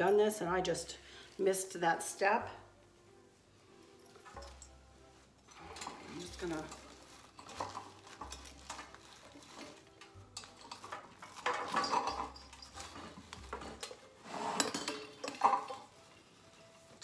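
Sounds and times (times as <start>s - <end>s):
ribbon rustling: 2.8s - 14.2s, 15.1s - 17.0s
small metal clinks and taps: 4.0s - 4.8s.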